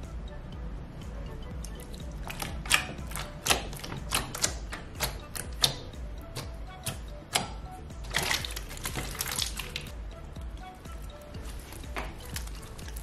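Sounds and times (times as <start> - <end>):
slime wet clicks and pops: 1.6 - 5.8, 8.1 - 9.9
slime crackling: 8.0 - 9.9, 11.4 - 13.0.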